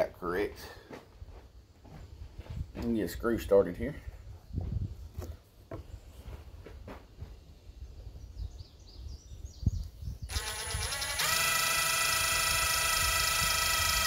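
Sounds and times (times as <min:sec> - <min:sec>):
power drill driving screw into wood: 0:10.3 - 0:14.0.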